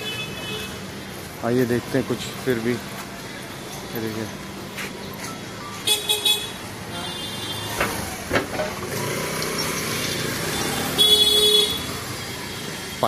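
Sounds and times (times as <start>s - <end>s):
street traffic: 0.0s - 13.0s
motorbike engines running: 0.7s - 13.0s
vehicle horn short toots: 10.9s - 11.9s.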